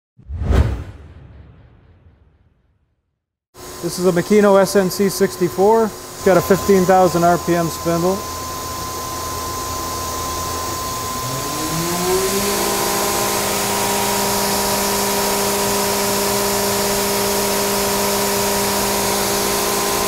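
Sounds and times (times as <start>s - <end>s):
spindle whine and hiss: 3.6s - 16.0s.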